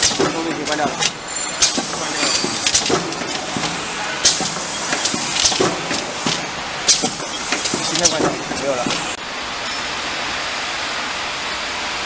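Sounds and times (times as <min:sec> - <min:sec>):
pneumatic air hiss: 0:00.0 - 0:09.2
steady machine noise: 0:00.0 - 0:11.8.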